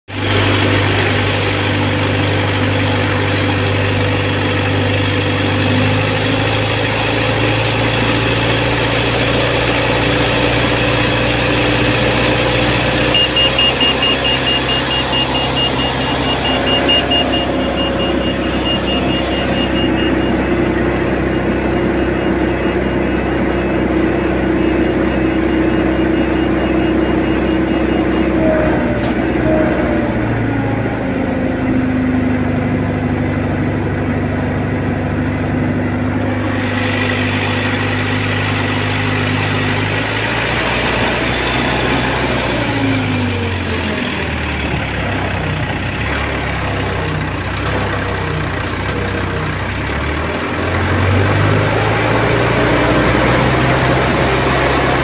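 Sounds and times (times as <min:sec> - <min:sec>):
crane diesel engine running: 0:00.1 - 0:55.0
fast high-pitched beeping: 0:07.2 - 0:28.4, 0:36.0 - 0:44.2.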